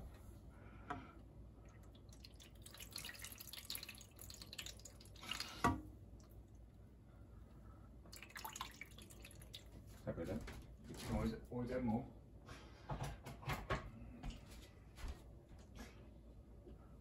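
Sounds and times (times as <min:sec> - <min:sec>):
water dripping in metal tray: 0:01.7 - 0:05.6, 0:08.1 - 0:09.8.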